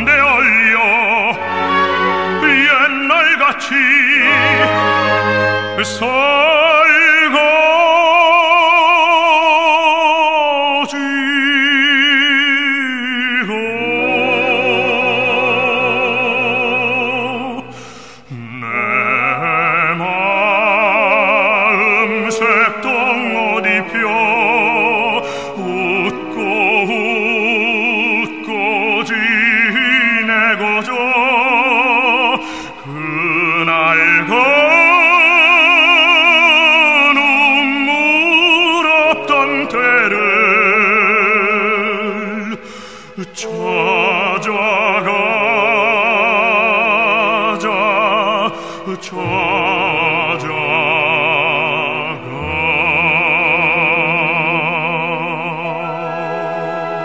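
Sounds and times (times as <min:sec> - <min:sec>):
instrumental accompaniment: 0:00.0 - 0:08.0, 0:13.6 - 0:30.4, 0:46.6 - 0:57.0
operatic baritone singing: 0:00.0 - 0:57.0.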